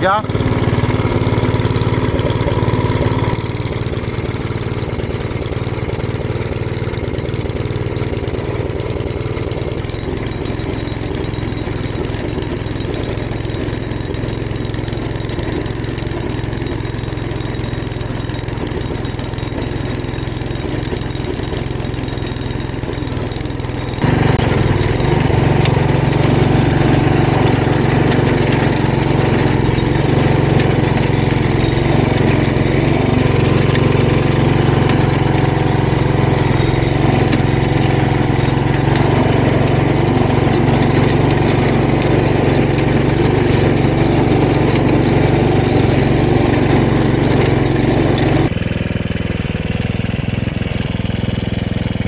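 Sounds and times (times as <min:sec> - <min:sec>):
tiller petrol engine running: 0:00.0 - 0:52.0.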